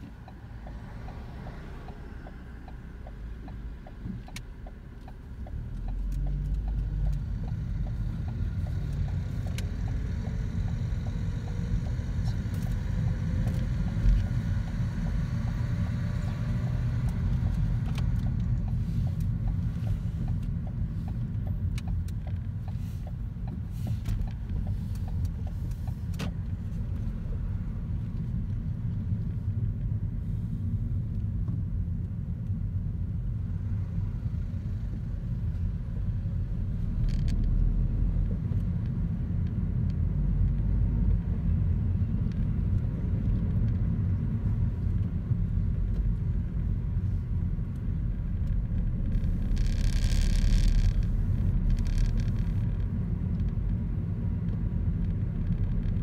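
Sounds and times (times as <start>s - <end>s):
car engine and tyres rumbling: 0.0s - 56.0s.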